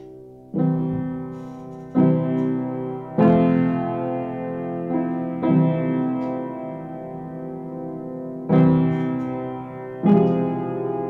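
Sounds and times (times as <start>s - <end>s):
piano chords: 0.0s - 11.0s.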